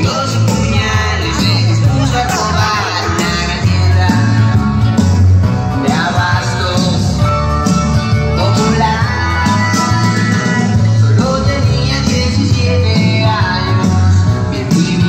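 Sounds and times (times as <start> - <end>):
loud rock and roll music: 0.0 - 15.0.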